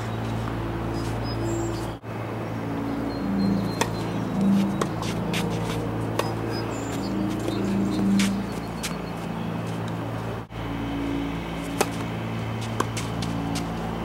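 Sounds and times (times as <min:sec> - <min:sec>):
steady low hum: 0:00.0 - 0:14.0
tennis balls struck by rackets: 0:03.3 - 0:10.0, 0:11.4 - 0:14.0.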